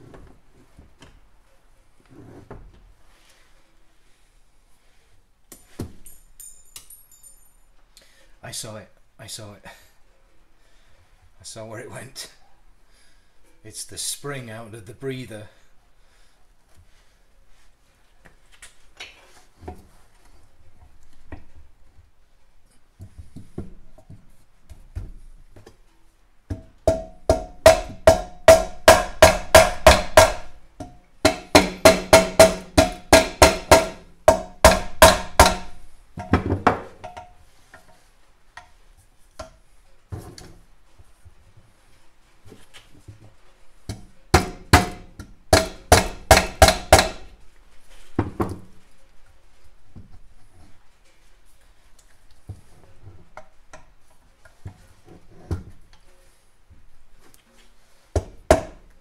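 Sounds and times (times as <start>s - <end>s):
rubber mallet tapping metal: 26.5s - 36.4s, 43.9s - 47.3s.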